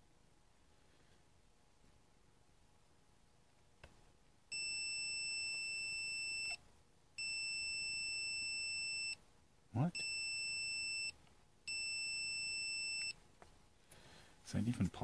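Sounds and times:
multimeter continuity beep: 0:04.5 - 0:06.6, 0:07.2 - 0:09.2, 0:09.8 - 0:13.2.

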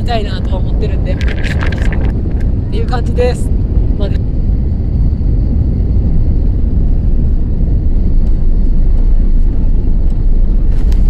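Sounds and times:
faint rattles: 0:00.0 - 0:04.2
airliner cabin rumble: 0:00.0 - 0:11.0.

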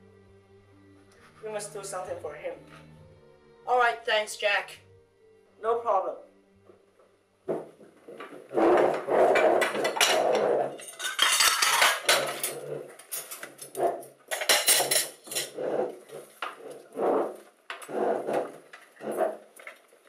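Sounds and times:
plates and cutlery clattering: 0:07.5 - 0:19.9.

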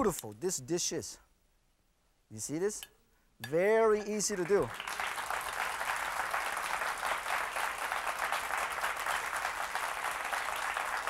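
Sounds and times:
audience applauding: 0:04.4 - 0:11.0.

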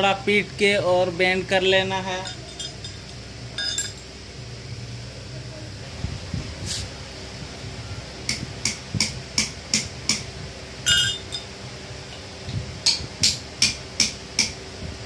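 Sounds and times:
ringing metal clink: 0:02.2 - 0:04.1, 0:10.8 - 0:11.6
hammer striking steel: 0:10.9 - 0:11.5, 0:12.8 - 0:14.6.

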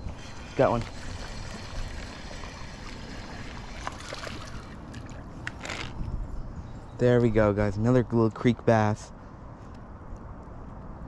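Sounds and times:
creek water running: 0:00.0 - 0:05.9.

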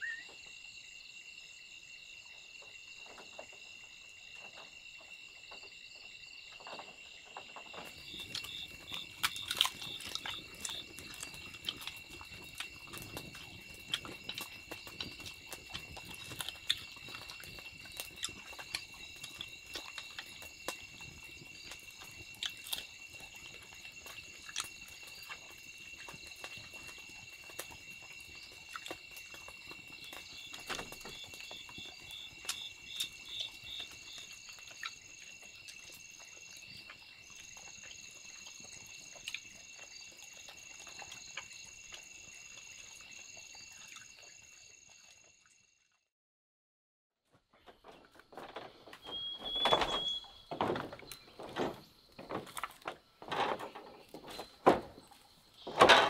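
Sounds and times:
insects chorus: 0:00.0 - 0:45.7, 0:47.5 - 0:56.0
irregular clicks and knocks: 0:47.6 - 0:55.0, 0:55.6 - 0:56.0.

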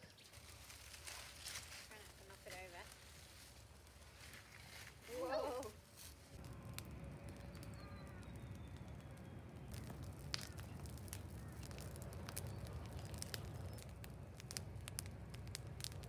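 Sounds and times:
dry wood crackling and popping: 0:00.0 - 0:16.0
low steady rumble: 0:00.5 - 0:16.0.

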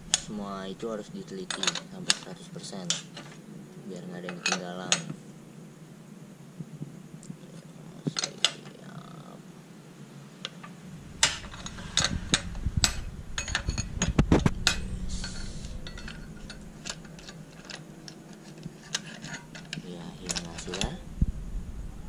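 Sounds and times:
low rumble: 0:00.0 - 0:01.2, 0:10.8 - 0:18.1, 0:19.4 - 0:22.0
metal tool clinking and knocking: 0:01.5 - 0:02.3, 0:04.3 - 0:05.2, 0:11.2 - 0:21.0.

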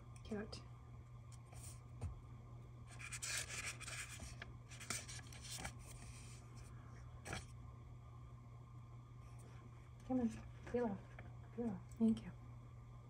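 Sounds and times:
page turning: 0:02.9 - 0:06.4, 0:07.2 - 0:07.5
paper rubbing and rustling: 0:02.9 - 0:06.4.

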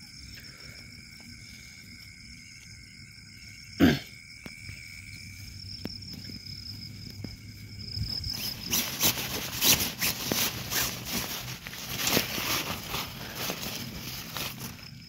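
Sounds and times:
insects trilling: 0:00.0 - 0:15.0
tent fabric rustling: 0:05.3 - 0:15.0.

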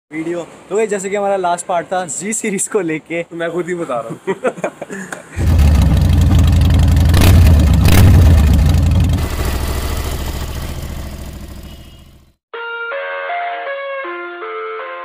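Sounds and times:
motorcycle engine rumbling: 0:05.4 - 0:12.4
music: 0:12.5 - 0:15.0.

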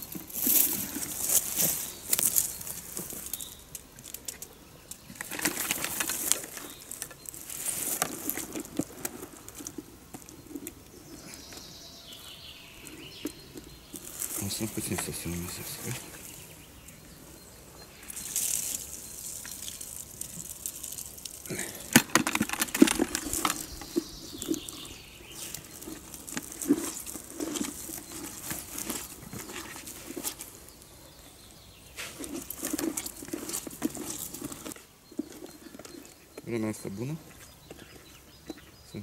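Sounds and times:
hands squelching wet bread: 0:18.0 - 0:30.9.

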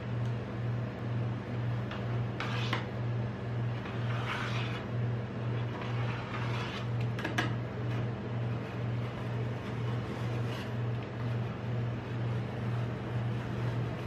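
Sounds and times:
machine low pulsing hum: 0:00.0 - 0:14.0
metal spatula scraping ice cream: 0:01.9 - 0:02.9, 0:03.7 - 0:07.1, 0:08.4 - 0:14.0.

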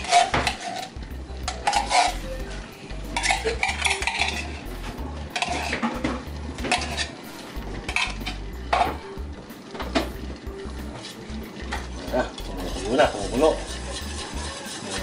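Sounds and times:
spoon scraping inside tin can: 0:00.0 - 0:02.4, 0:03.0 - 0:04.7, 0:05.3 - 0:06.0, 0:06.6 - 0:07.2, 0:10.9 - 0:15.0.

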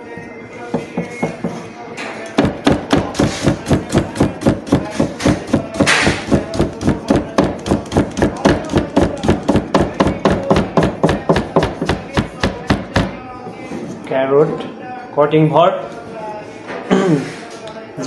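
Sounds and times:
knife chopping on plastic board: 0:02.4 - 0:13.2.

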